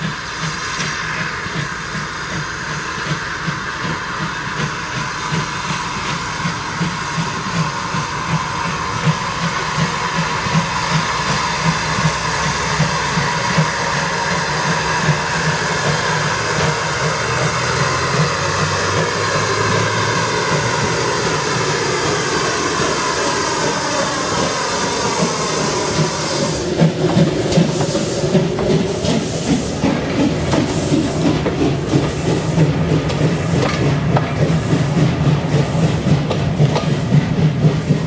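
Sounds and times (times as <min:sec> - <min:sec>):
train running on rails: 0:00.0 - 0:38.0
wheels clicking over rail joints: 0:03.0 - 0:38.0.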